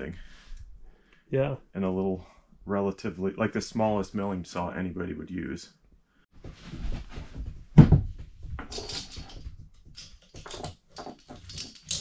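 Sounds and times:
saw chain clinking and rattling: 8.5s - 12.0s.

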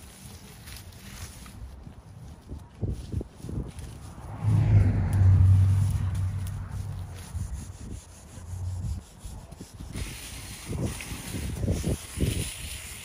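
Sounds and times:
branches and dry leaves rustling: 0.0s - 8.8s
low rumble: 3.9s - 9.0s.

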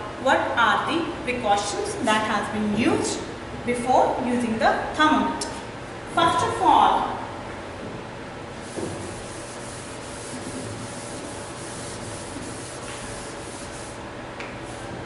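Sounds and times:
duster scrubbing a chalkboard: 8.6s - 15.0s.

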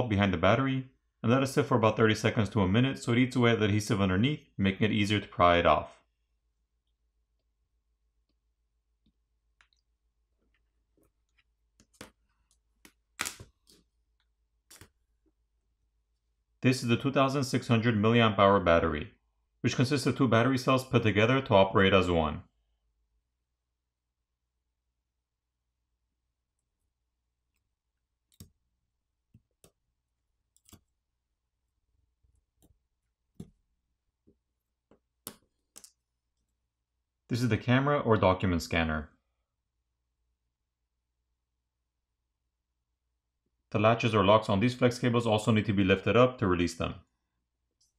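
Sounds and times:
metal tweezers clicking and tapping: 30.5s - 31.0s.

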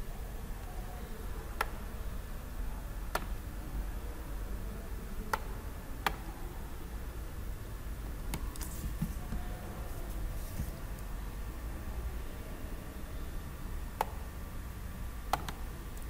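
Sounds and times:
steady low hum: 0.0s - 16.0s
computer mouse clicks: 15.3s - 16.0s.

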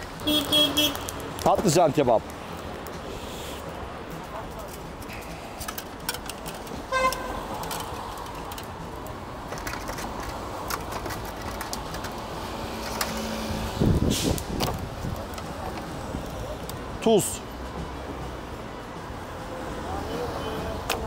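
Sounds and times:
street background noise: 0.0s - 21.0s
car horn toot: 0.2s - 1.1s, 6.9s - 7.4s.

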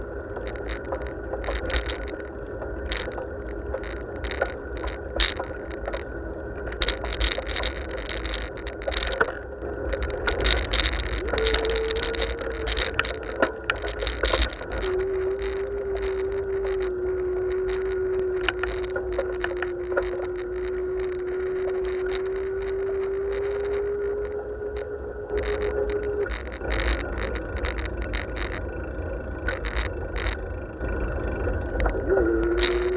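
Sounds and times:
bicycle clicks and rattles: 0.0s - 32.9s
steady whine: 0.0s - 32.9s
wind rumble on microphone: 0.0s - 32.9s.

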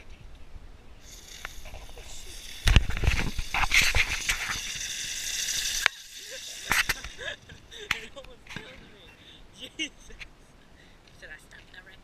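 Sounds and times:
firework fountain crackling hiss: 1.0s - 9.0s.

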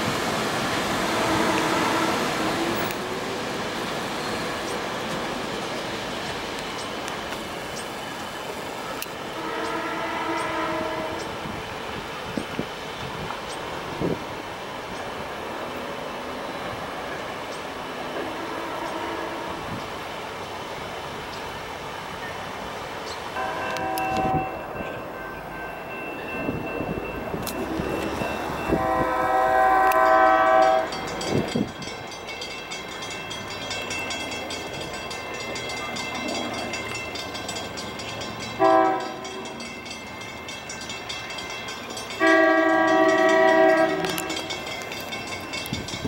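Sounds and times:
train rumbling on track: 0.0s - 46.0s
train air horn blasts: 0.9s - 2.9s, 9.3s - 11.5s, 18.1s - 19.8s, 23.4s - 24.7s, 28.6s - 31.4s, 38.6s - 39.6s, 42.2s - 44.6s.

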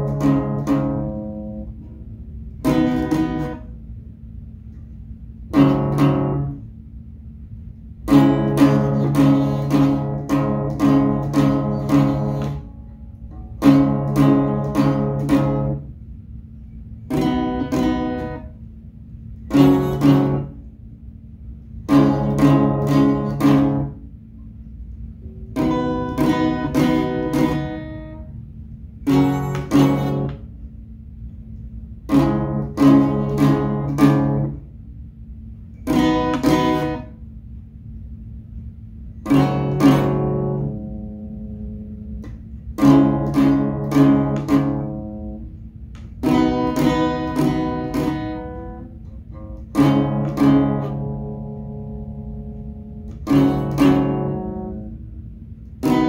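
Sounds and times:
acoustic guitar strumming: 0.0s - 3.8s, 5.4s - 6.8s, 8.0s - 16.0s, 17.0s - 18.6s, 19.4s - 20.7s, 21.8s - 24.1s, 25.2s - 30.6s, 32.0s - 34.7s, 35.7s - 37.2s, 39.1s - 45.6s, 46.2s - 55.2s, 55.8s - 56.0s.

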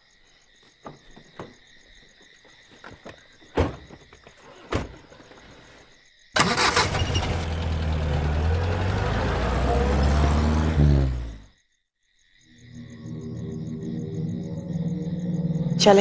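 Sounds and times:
crickets chirping: 0.0s - 7.2s, 11.2s - 16.0s
car engine starting and running: 6.4s - 11.5s.

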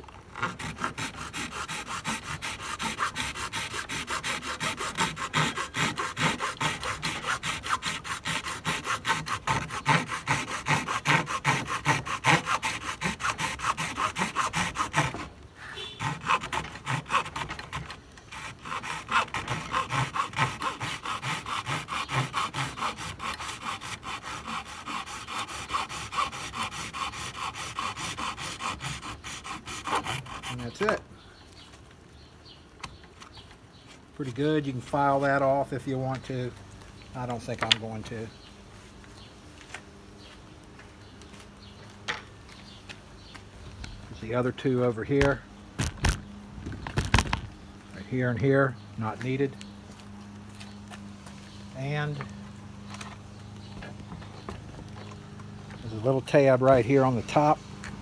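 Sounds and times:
hacksaw sawing plastic: 0.0s - 31.0s, 46.8s - 47.5s.

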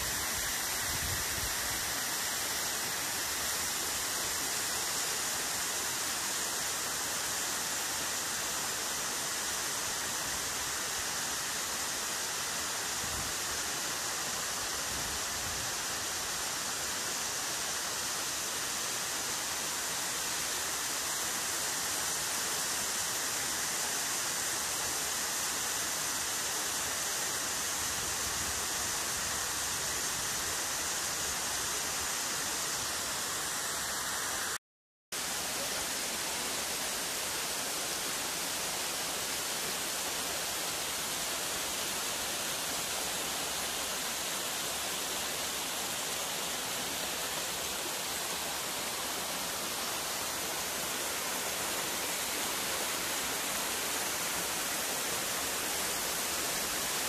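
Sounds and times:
waterfall rushing: 35.2s - 57.0s.

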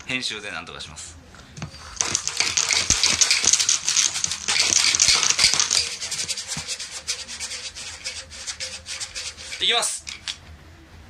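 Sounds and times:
cup rim scraping tabletop: 1.6s - 10.3s
dice rattling in a cup: 1.7s - 10.4s.

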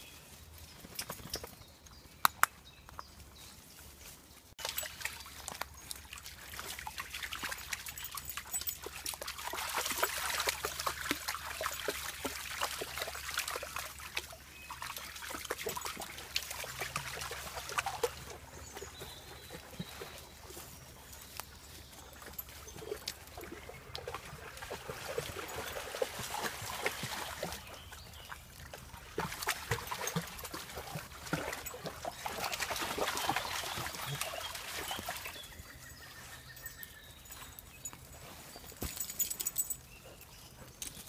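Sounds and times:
dog splashing through stream: 4.6s - 20.8s, 21.8s - 36.5s.

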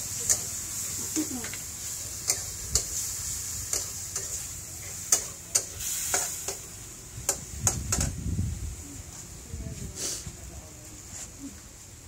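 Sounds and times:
hot oil sizzling: 0.0s - 10.2s
metal spatula scraping wok: 0.3s - 6.8s.

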